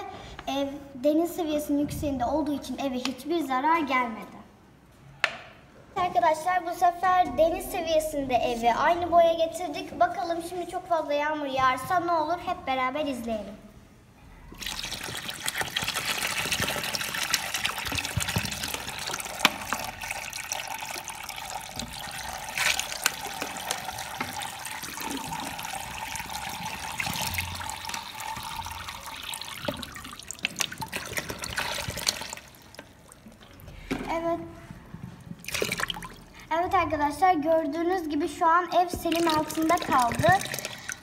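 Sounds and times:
water splashing into tray: 0:14.5 - 0:33.7, 0:35.4 - 0:36.3, 0:39.0 - 0:41.0.

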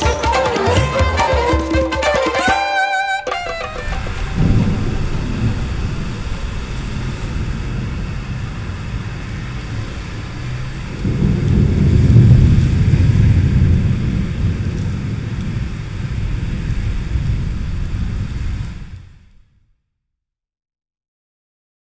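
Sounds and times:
deep low rumble: 0:03.8 - 0:19.4.

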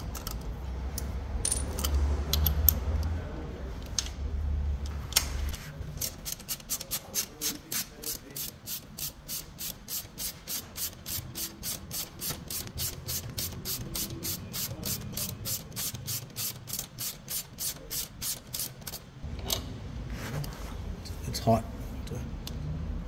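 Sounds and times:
ratchet wrench clicking: 0:08.0 - 0:19.0.

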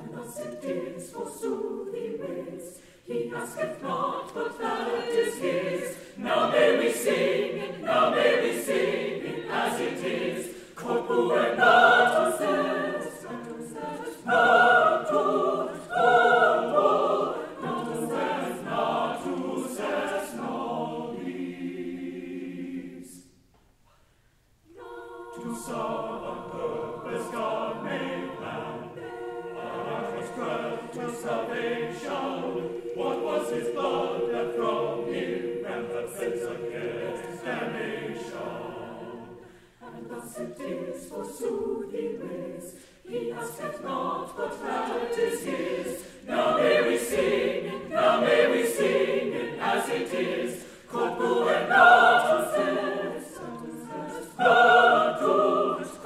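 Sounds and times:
mixed choir singing in parts: 0:00.0 - 0:23.5, 0:24.6 - 0:56.0.

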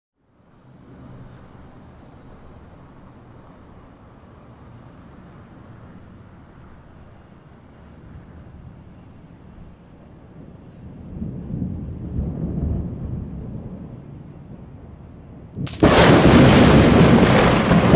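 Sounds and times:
city background rumble: 0:00.2 - 0:17.9
thunder rumbling: 0:10.3 - 0:17.9.

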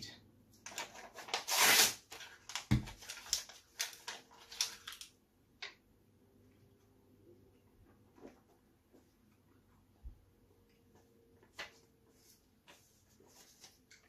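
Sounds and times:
paper ripping: 0:00.7 - 0:05.0.

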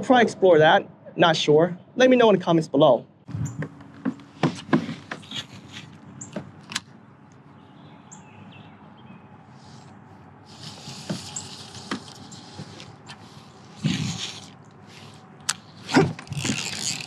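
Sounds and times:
bird chirps: 0:07.5 - 0:09.9
fishing rod and reel clicks: 0:10.5 - 0:17.0.

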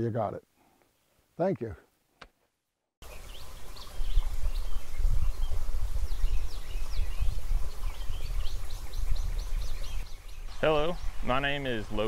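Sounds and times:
small birds chirping: 0:03.0 - 0:12.0
wind rumbling on microphone: 0:03.0 - 0:12.0.

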